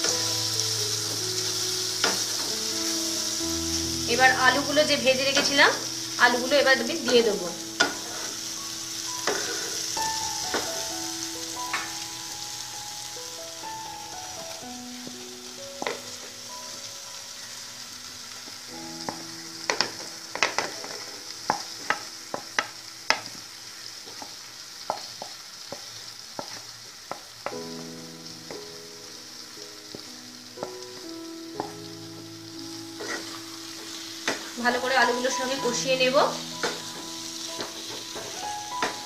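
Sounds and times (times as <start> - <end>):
potatoes sizzling in oiled pan: 0.0 - 39.0
spatula scraping pan: 7.8 - 8.5, 33.0 - 34.5.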